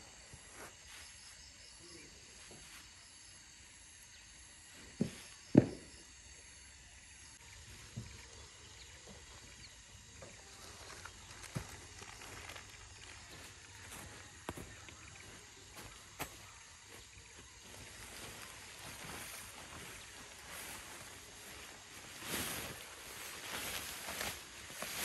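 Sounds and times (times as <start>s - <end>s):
faint outdoor background: 0.0s - 25.0s.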